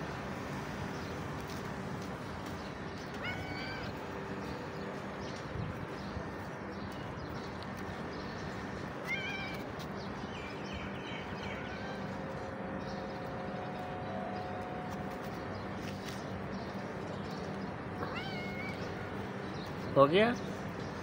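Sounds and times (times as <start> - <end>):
cat meowing: 3.1 - 4.0, 9.0 - 9.6, 18.0 - 19.0.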